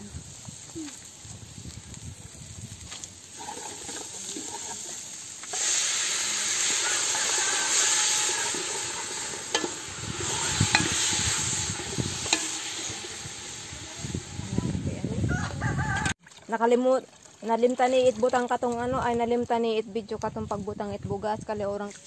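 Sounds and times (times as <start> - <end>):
chicken sizzling in a pot: 0.0 - 16.0.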